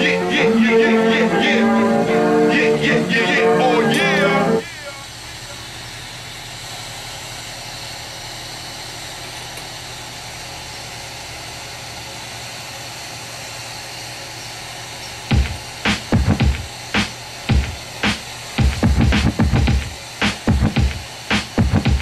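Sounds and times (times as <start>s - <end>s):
bench torch hissing: 0.0s - 22.0s
music with heavy beats: 15.3s - 22.0s.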